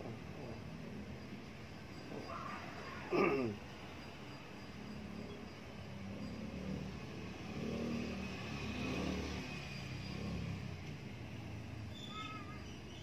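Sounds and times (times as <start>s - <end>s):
motor vehicle passing: 4.8s - 13.0s.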